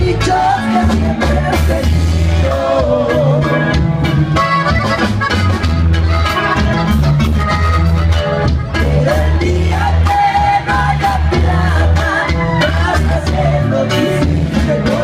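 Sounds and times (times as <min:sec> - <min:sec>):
accordion: 0:00.0 - 0:15.0
pulsing bass line: 0:00.0 - 0:15.0.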